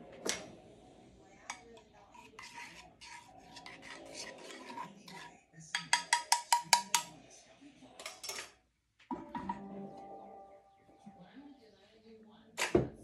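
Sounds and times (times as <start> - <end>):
utensil scraping saucepan: 1.5 - 7.1
utensil tapping pan rim: 5.8 - 7.1.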